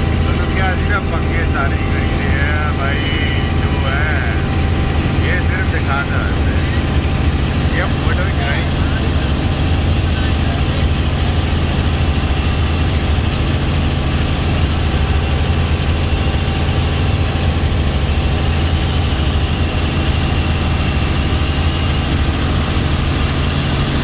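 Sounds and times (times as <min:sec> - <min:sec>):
helicopter engine and rotor drone: 0:00.0 - 0:24.0.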